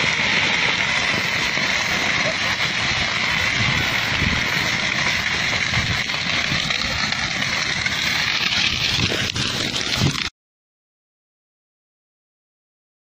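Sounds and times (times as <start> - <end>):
sharp crack: 0.0 - 10.3
wind rush on microphone: 0.9 - 10.3.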